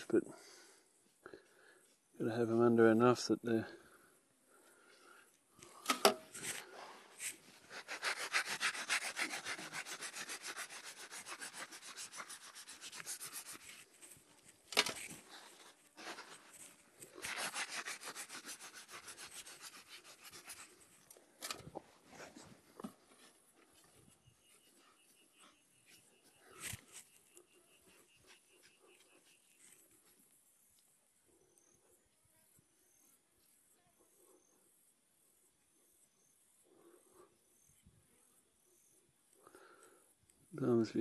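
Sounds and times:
dirt being brushed: 6.3s - 30.3s.

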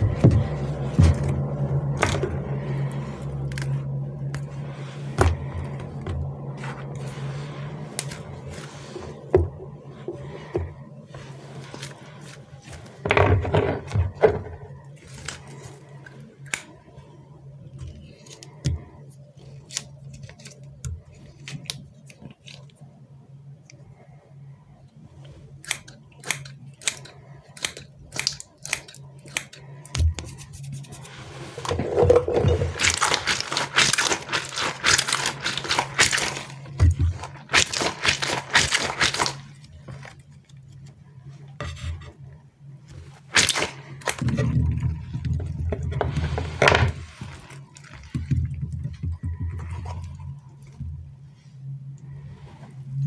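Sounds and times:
crackling and crunching toy: 31.8s - 40.7s, 43.3s - 50.2s
wet squelching: 32.6s - 40.3s, 43.2s - 45.6s.

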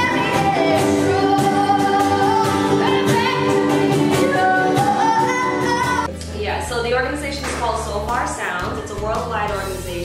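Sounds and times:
woman singing: 0.0s - 6.1s
upright bass: 0.0s - 10.0s.

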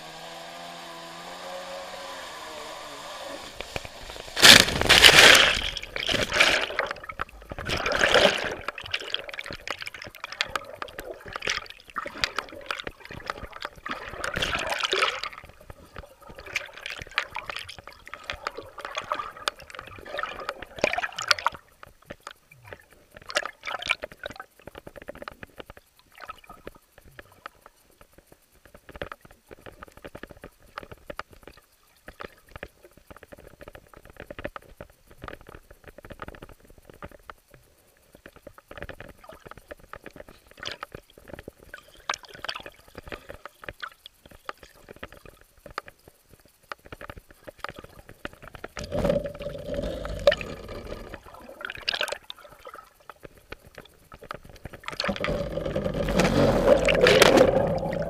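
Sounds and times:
water sloshing: 3.6s - 24.8s, 47.6s - 58.0s
underwater gurgling and bubbling: 3.9s - 27.8s, 47.4s - 58.0s
loud splash into water: 4.3s - 6.9s
bubble pops and crackles: 54.8s - 58.0s.

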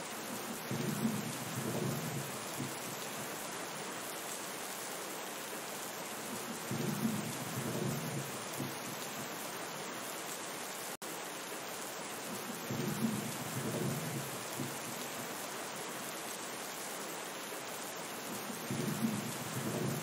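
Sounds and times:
steady rain: 0.0s - 20.0s
low rolls of thunder: 0.7s - 2.8s, 6.6s - 8.9s, 12.7s - 14.8s, 18.4s - 20.0s.

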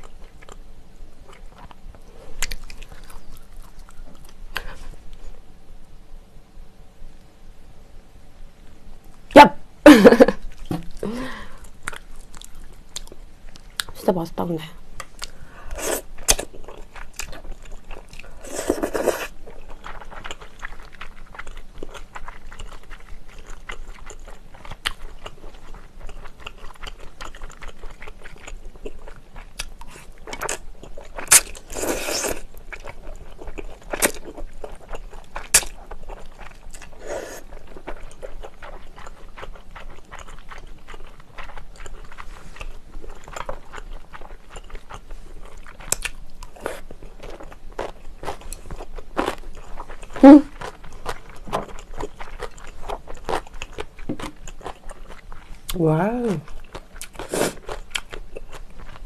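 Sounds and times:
chewing and slurping noodles: 15.1s - 55.7s, 56.4s - 59.0s.

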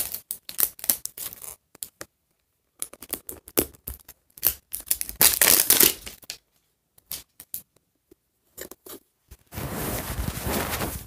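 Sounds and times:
plastic wrapping tearing: 4.4s - 6.2s.

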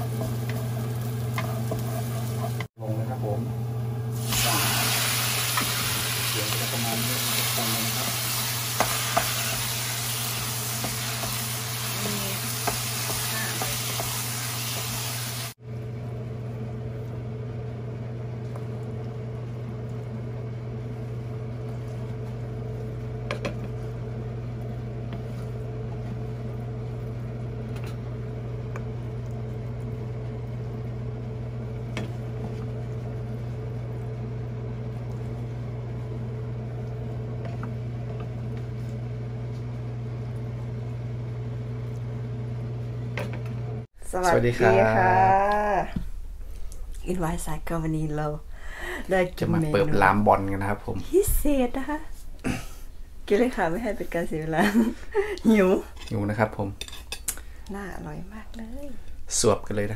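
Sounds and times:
food sizzling in a pan: 0.0s - 2.7s, 4.1s - 15.6s
spatula scraping pan: 7.0s - 15.2s
steady low hum: 15.6s - 59.9s.

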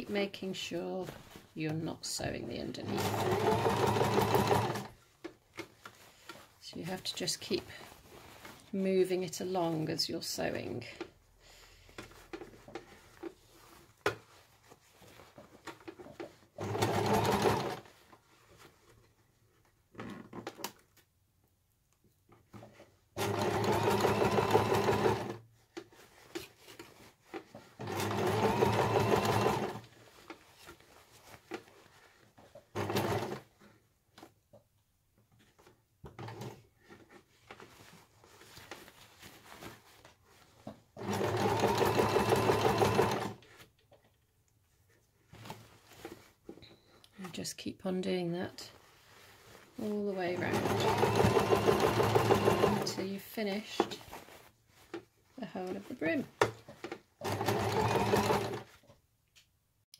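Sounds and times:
electric sewing machine stitching: 2.8s - 4.9s, 16.6s - 17.8s, 23.2s - 25.4s, 27.8s - 29.8s, 32.7s - 33.4s, 41.0s - 43.4s, 50.3s - 53.1s, 57.2s - 58.7s.

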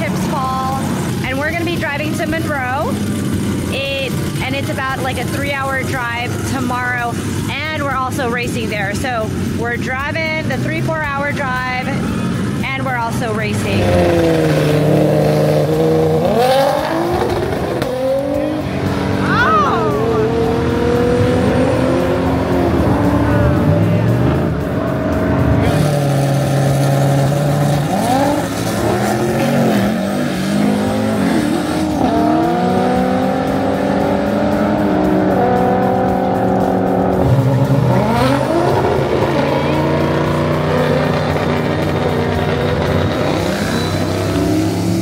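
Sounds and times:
car engines revving: 0.0s - 45.0s
music: 18.8s - 27.2s, 32.2s - 44.7s.

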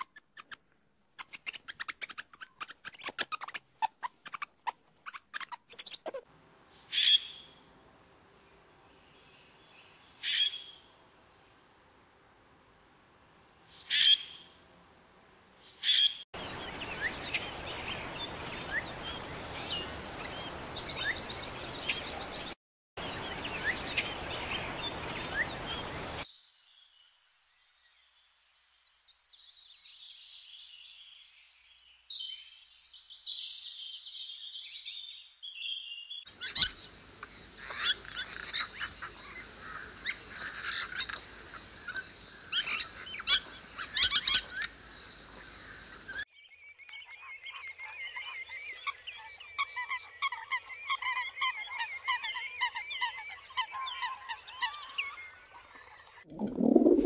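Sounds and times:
steady outdoor hiss: 6.2s - 34.5s, 36.3s - 46.2s
birds chirping and calling: 6.8s - 7.6s, 10.1s - 10.8s, 36.3s - 46.2s.

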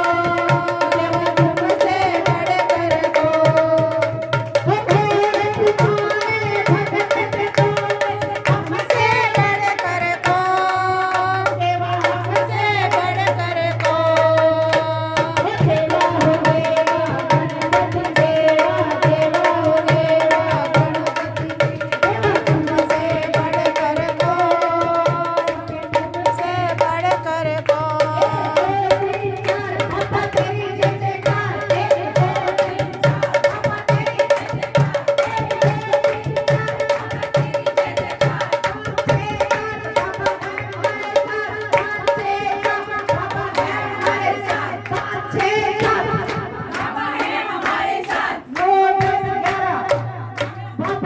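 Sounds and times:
hand drum fast rhythm: 0.0s - 51.0s
woman singing a folk song: 4.7s - 32.5s
hand claps: 40.4s - 42.0s, 42.6s - 51.0s.

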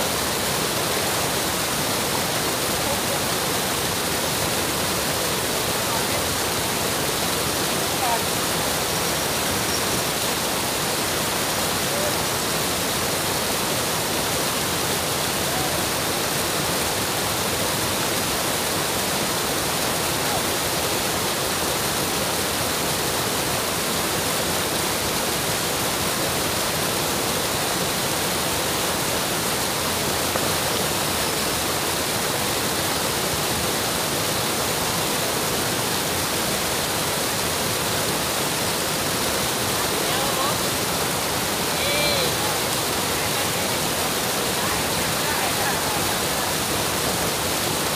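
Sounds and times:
water rushing over a weir: 0.0s - 47.9s.

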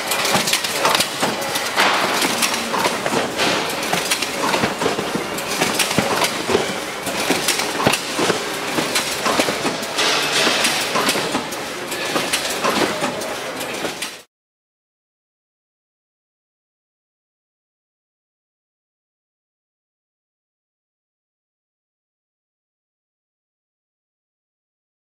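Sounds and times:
packaging machine clattering: 0.0s - 14.2s.

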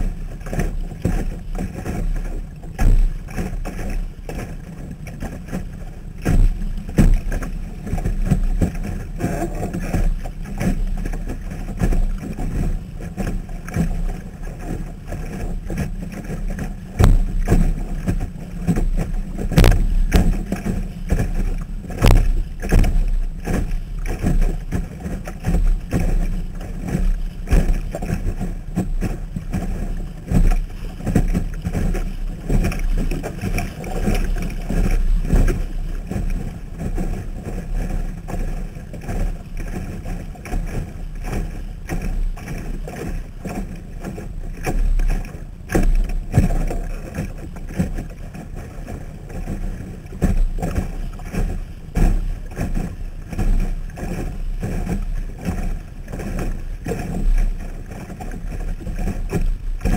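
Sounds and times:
water slapping against boat hull: 0.0s - 59.9s
sharp knocks: 17.0s - 17.5s, 19.5s - 20.4s, 22.0s - 23.0s.

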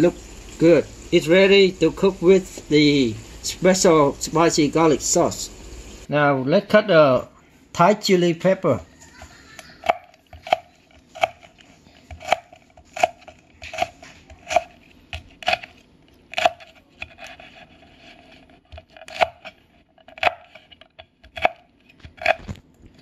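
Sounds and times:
knife chopping on wooden board: 9.8s - 22.6s.

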